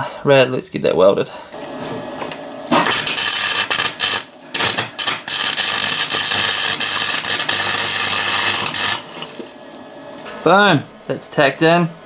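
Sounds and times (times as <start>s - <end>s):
welding arc crackling: 2.0s - 9.8s.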